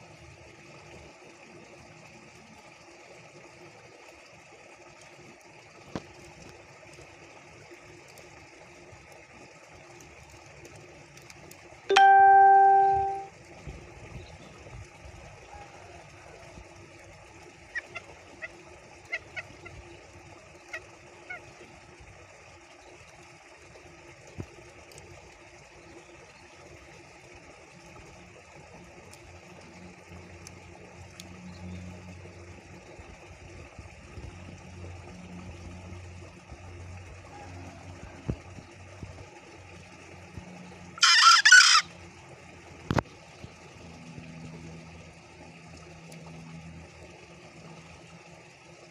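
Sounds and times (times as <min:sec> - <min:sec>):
junglefowl sharp kek calls: 0:41.0 - 0:41.8.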